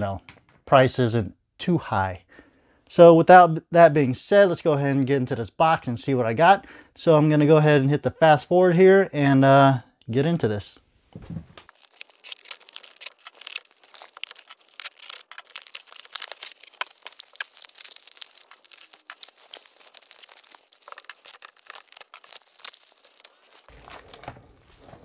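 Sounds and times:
bubble wrap crinkling: 0:11.6 - 0:25.0
tape and cardboard tearing: 0:11.7 - 0:25.0.

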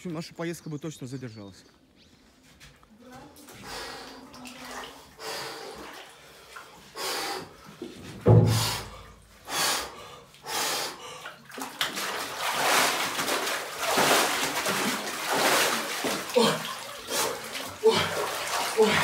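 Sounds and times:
water splashing and sloshing: 0:02.2 - 0:19.0
thump: 0:08.2 - 0:08.9.

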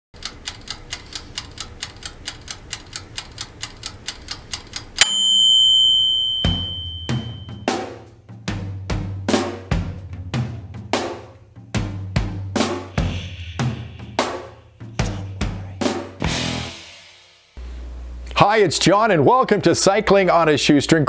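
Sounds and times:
timer ticking: 0:00.2 - 0:07.8
timer bell ding: 0:05.0 - 0:07.8
drum beat: 0:06.3 - 0:17.4.

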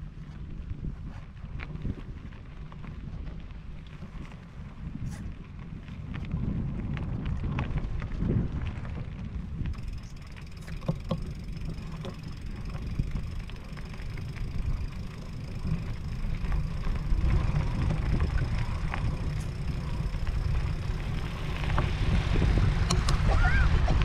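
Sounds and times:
wind rumble on microphone: 0:00.0 - 0:24.0
small stone ticks: 0:01.2 - 0:23.1
tyres crunching on gravel: 0:09.8 - 0:22.8.

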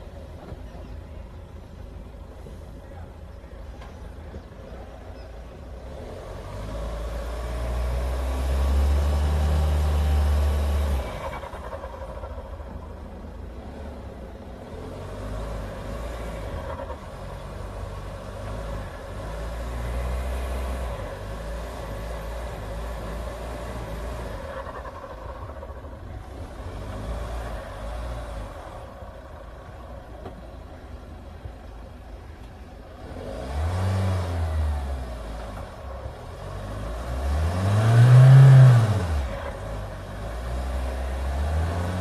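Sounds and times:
engine revving under load: 0:05.8 - 0:12.9, 0:13.5 - 0:30.5, 0:32.9 - 0:42.0.

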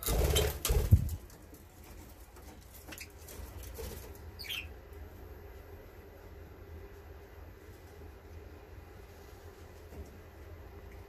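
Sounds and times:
bird wings flapping: 0:00.0 - 0:01.4.

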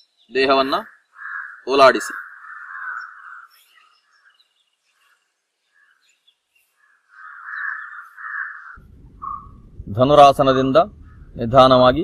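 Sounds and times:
faint high bird chirps: 0:00.0 - 0:09.6
harsh cawing calls: 0:00.4 - 0:09.6.

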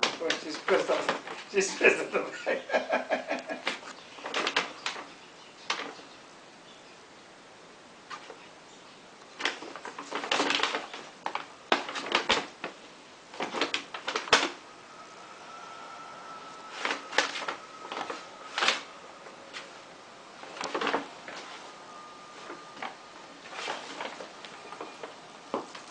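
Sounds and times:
paper bag rustling and crackling: 0:03.7 - 0:05.1, 0:09.3 - 0:25.9.

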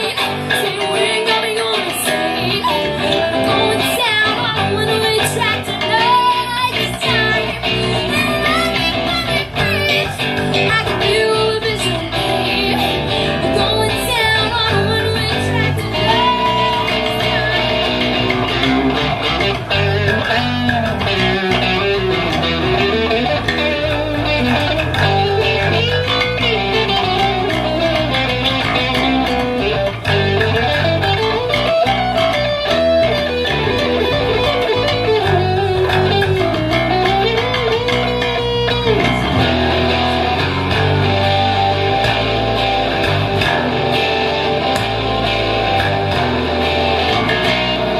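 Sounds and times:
electric bass playing: 0:00.0 - 0:47.9
electric guitar lead: 0:00.0 - 0:47.9.

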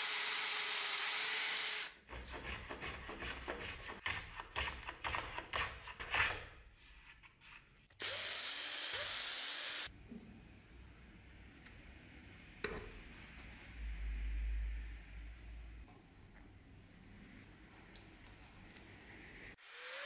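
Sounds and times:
drill press boring wood: 0:00.0 - 0:01.9, 0:08.0 - 0:09.9.

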